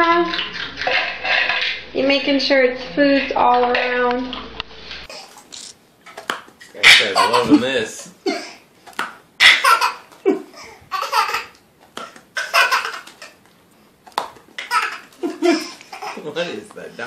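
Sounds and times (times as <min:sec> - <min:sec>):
baby laughing: 0:06.8 - 0:08.6, 0:09.4 - 0:13.4, 0:14.6 - 0:16.4.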